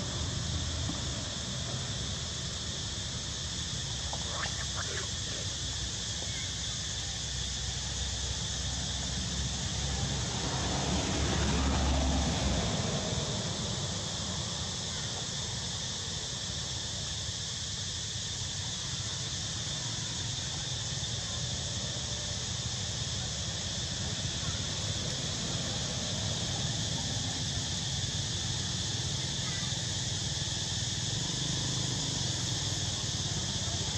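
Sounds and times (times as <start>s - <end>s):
insect drone: 0.0s - 33.9s.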